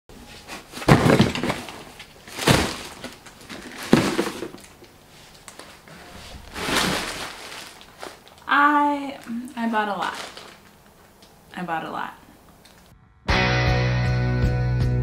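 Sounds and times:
plastic mailer bag rustling: 0.4s - 11.2s
parcels thudding onto sofa: 0.6s - 4.6s, 6.1s - 8.2s.

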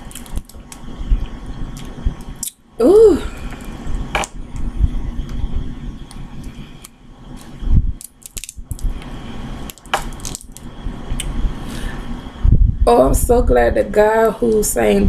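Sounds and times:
shells cracking and clicking: 6.8s - 10.7s.

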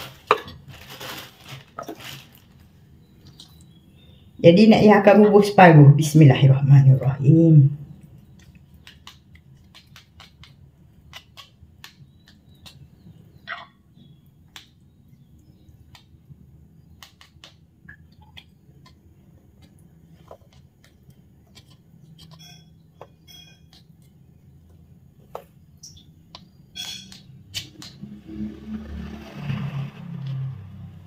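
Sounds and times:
metal spoon scraping and tapping: 26.8s - 27.7s.

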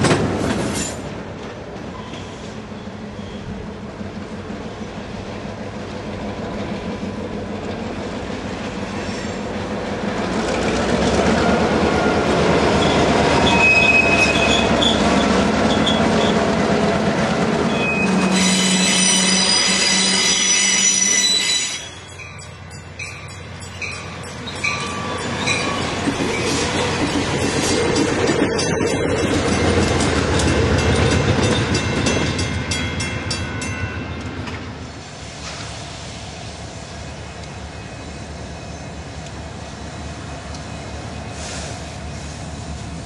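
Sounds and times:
diesel locomotives rumbling: 0.0s - 43.0s
passenger train rushing by: 0.0s - 43.0s
steel wheels squealing: 1.9s - 3.6s, 8.9s - 9.5s, 11.4s - 16.4s, 17.7s - 22.5s, 23.6s - 29.7s
crossing bell dinging: 18.9s - 34.6s
wheels clacking over rail joints: 23.1s - 34.7s.

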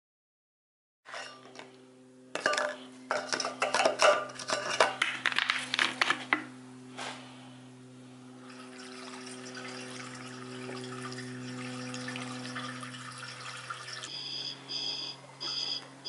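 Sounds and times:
low hum: 6.4s - 16.0s.

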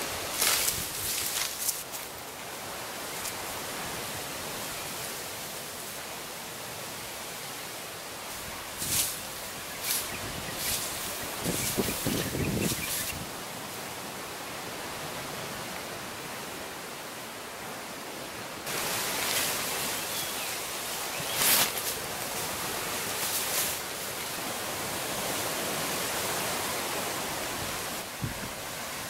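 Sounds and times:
water: 0.0s - 29.0s
wind hiss: 0.0s - 29.0s
rustling: 0.2s - 2.2s, 8.3s - 13.2s, 21.2s - 24.2s.

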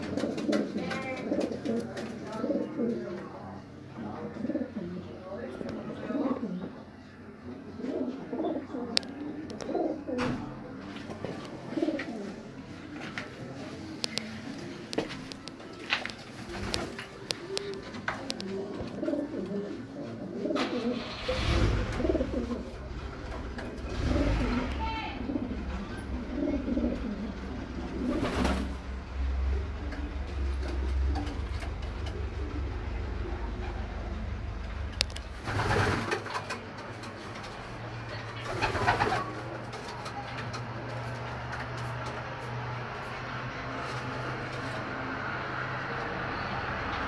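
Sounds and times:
pigeons cooing: 0.0s - 3.1s, 4.3s - 5.1s, 7.8s - 10.2s, 11.6s - 12.5s, 16.6s - 22.9s, 23.6s - 28.8s.

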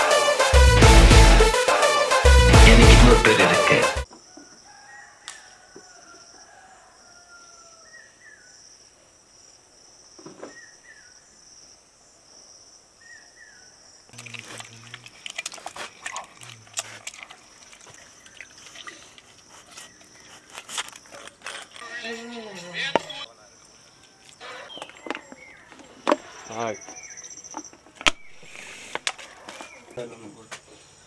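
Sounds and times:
liquid squelching and splashing: 14.1s - 20.1s.

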